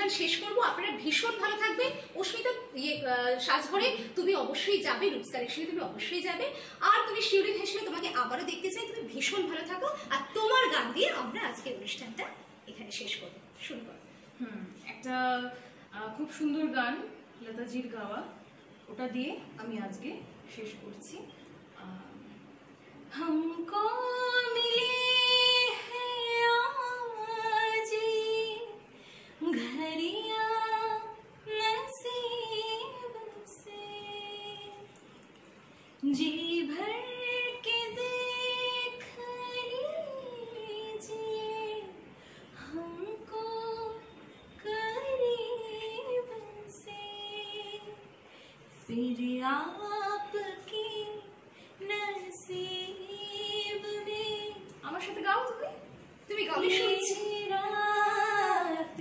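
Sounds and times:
woman singing unaccompanied: 23.2 - 35.0, 36.0 - 42.0, 42.6 - 48.1, 48.8 - 55.2, 56.3 - 59.0.

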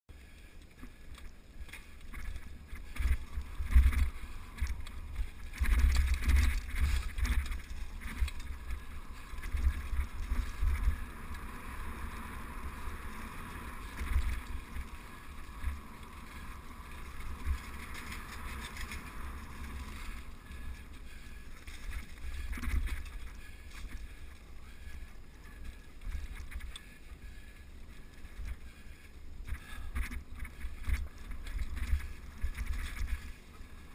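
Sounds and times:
bike tyres rolling over leaves: 0.1 - 33.9
bike knocking on rough trail: 0.8 - 27.0, 29.4 - 33.4
wind on microphone: 2.1 - 24.1.

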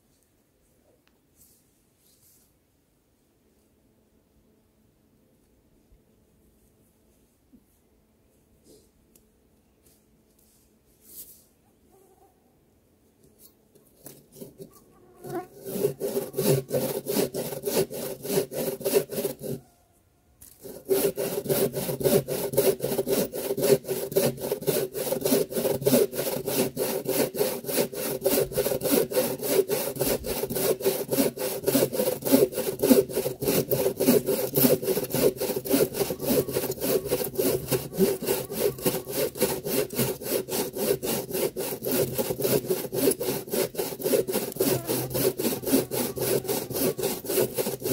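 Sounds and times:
hand saw cutting a log: 14.0 - 19.6, 20.4 - 47.9.

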